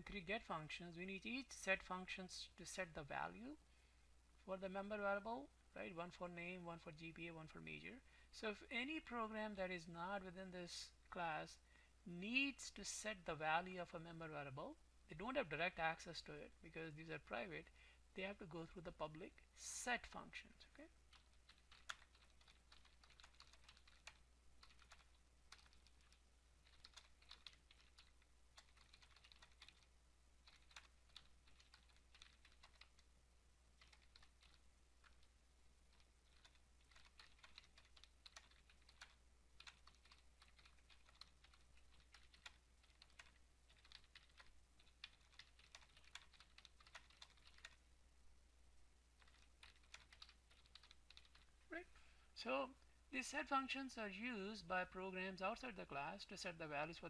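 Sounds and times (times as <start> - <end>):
faint keyboard typing: 18.4 - 33.1, 33.7 - 47.8, 49.2 - 51.8.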